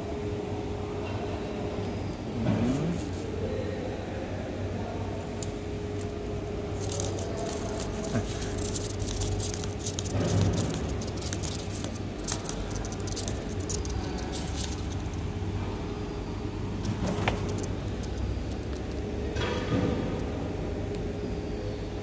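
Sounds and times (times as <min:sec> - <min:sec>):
steady low hum: 0:00.0 - 0:22.0
paper crinkling: 0:05.4 - 0:15.2, 0:16.8 - 0:19.0.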